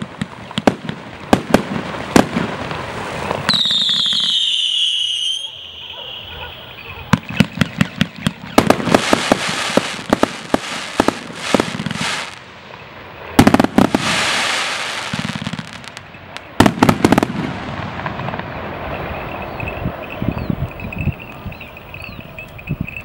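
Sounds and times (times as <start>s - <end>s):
firework pops and bursts: 0.0s - 5.8s, 7.1s - 19.4s.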